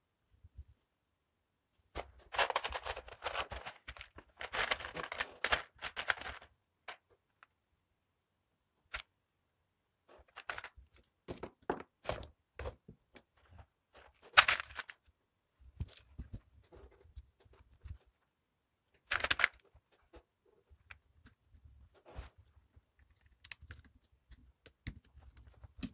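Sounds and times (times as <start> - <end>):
plastic parts clicking and rattling: 2.0 - 7.5, 10.1 - 18.2, 18.9 - 25.9.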